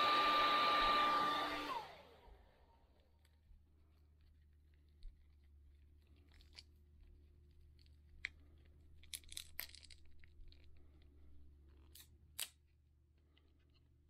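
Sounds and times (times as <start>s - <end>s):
plastic clicks and crackles: 7.8s - 11.1s.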